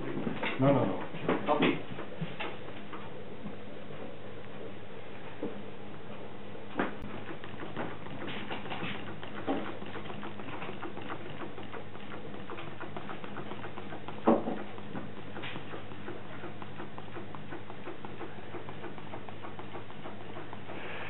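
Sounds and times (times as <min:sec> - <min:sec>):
stirling engine clicking: 0:07.0 - 0:21.0.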